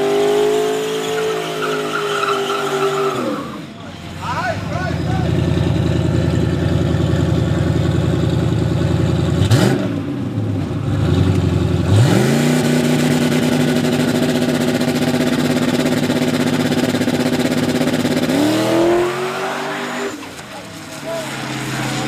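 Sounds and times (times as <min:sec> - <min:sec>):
drag car engine revving: 0:00.0 - 0:22.0.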